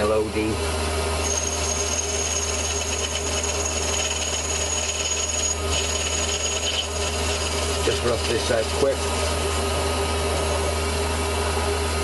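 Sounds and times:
lathe motor hum: 0.6s - 12.0s
lathe cutting metal: 1.1s - 11.0s
thin high whine: 1.2s - 8.0s.

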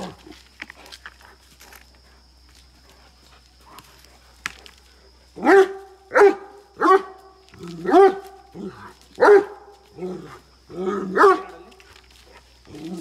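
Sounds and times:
dog barking: 5.4s - 7.2s, 7.8s - 8.3s, 9.2s - 9.6s, 11.1s - 11.6s.

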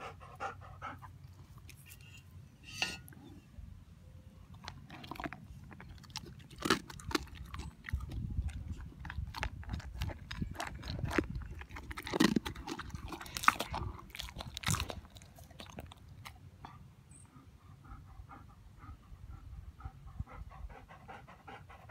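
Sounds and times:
dog crunching dry kibble: 4.5s - 16.5s.

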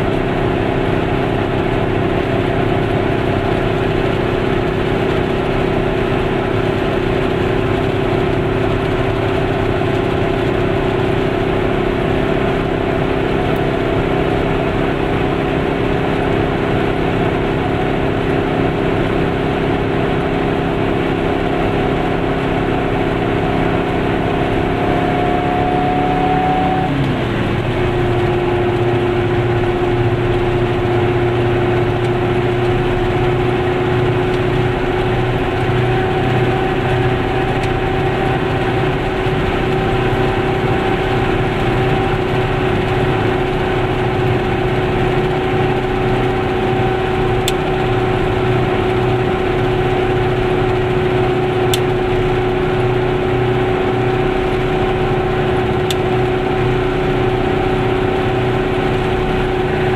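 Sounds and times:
two-stroke engine droning: 0.0s - 59.9s
tyres on a wet road: 0.0s - 59.9s.

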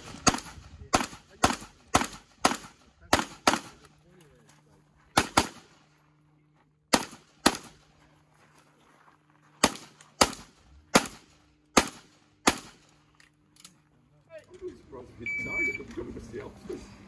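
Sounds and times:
handgun shots: 0.0s - 3.8s, 5.2s - 5.7s, 6.9s - 7.8s, 9.6s - 12.8s.

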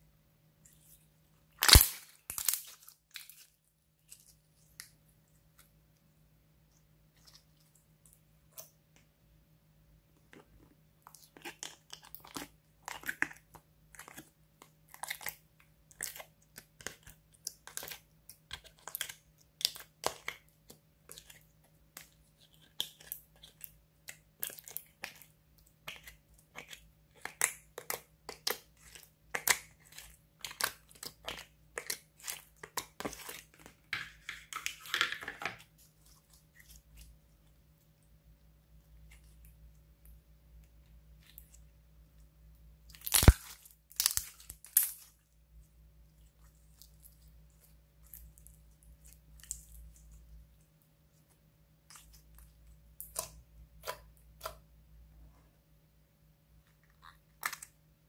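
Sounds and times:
slime crackling and popping: 1.6s - 3.4s, 42.9s - 45.2s.

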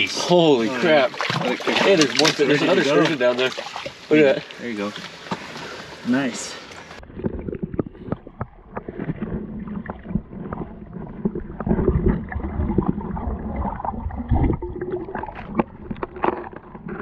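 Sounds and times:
underwater sloshing and gurgling: 0.0s - 17.0s
low underwater rumble: 6.9s - 17.0s.

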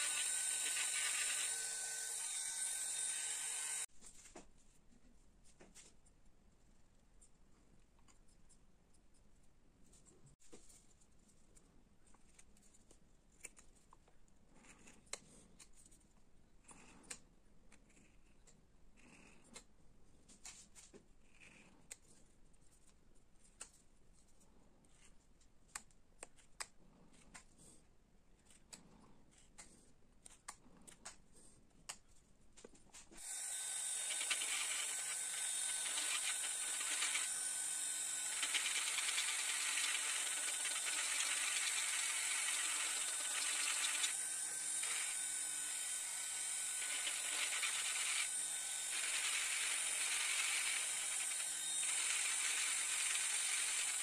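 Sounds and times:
carving tool scraping wood: 0.0s - 3.9s, 14.4s - 19.7s, 20.3s - 23.6s, 33.1s - 54.0s
rotary tool whining: 0.0s - 3.9s, 33.1s - 54.0s.

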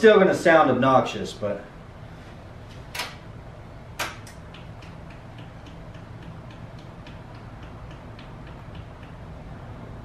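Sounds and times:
electrical ticking: 3.9s - 9.6s.

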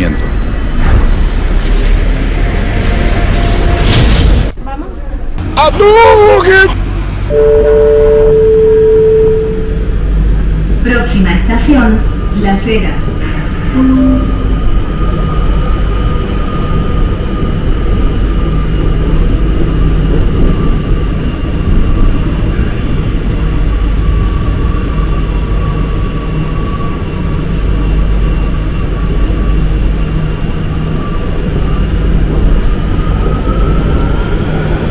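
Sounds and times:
train wheels rumbling on track: 14.4s - 34.9s.

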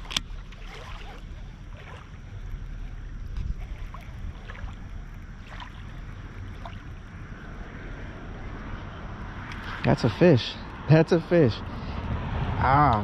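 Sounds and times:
faint short splashes: 0.0s - 7.0s
water lapping at bank: 0.0s - 8.2s
wind rumbling on microphone: 0.0s - 13.0s.

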